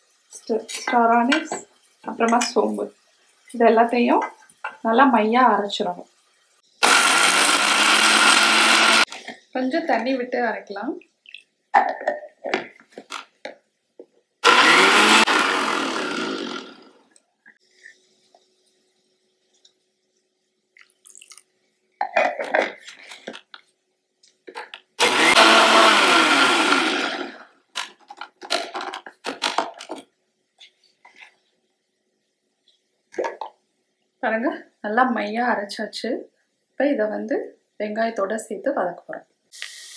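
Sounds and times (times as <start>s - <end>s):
mixer grinder grinding: 6.8s - 9.2s, 14.4s - 17.0s, 25.0s - 27.6s.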